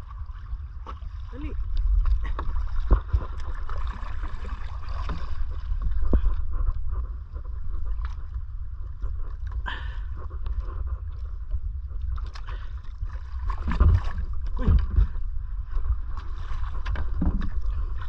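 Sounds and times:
paddle dipping and splashing: 0.0s - 18.0s
wind rumble on microphone: 0.0s - 18.0s.

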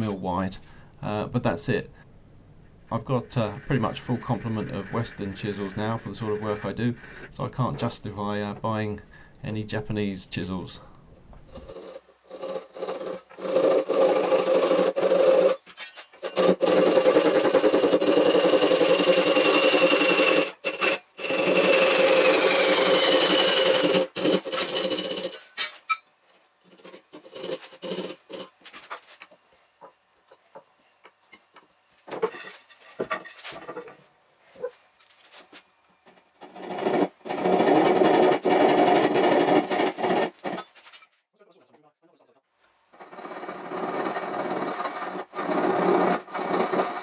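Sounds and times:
fast rasping saw strokes: 3.3s - 7.5s, 11.6s - 15.6s, 16.2s - 25.5s, 26.7s - 28.6s, 36.4s - 40.7s, 43.0s - 47.0s
tools knocking and scraping: 15.0s - 20.9s, 23.5s - 26.1s, 26.7s - 34.0s.

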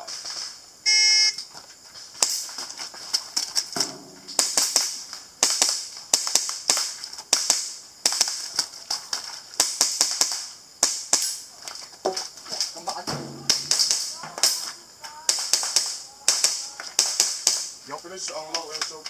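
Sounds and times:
airsoft pistol rapid shots: 4.3s - 8.4s, 13.1s - 14.6s, 15.3s - 17.7s.

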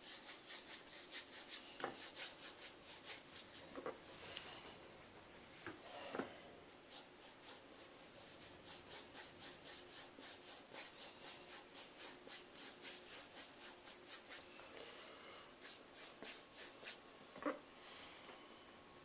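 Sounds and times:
paintbrush scratching on canvas: 0.0s - 3.9s, 6.9s - 14.6s, 15.6s - 17.0s.

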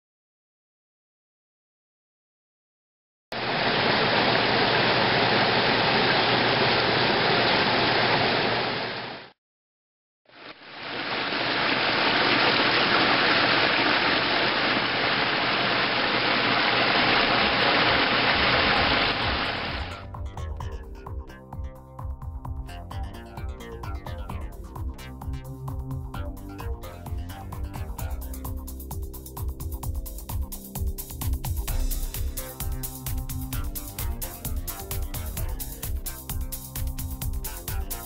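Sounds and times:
waterfall rushing over boulders: 3.4s - 9.3s, 10.4s - 20.0s.

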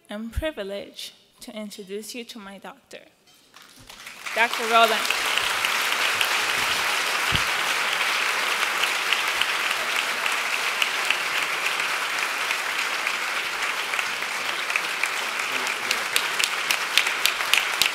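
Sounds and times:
sharp individual claps: 3.5s - 17.9s
audience applauding: 3.6s - 17.9s.

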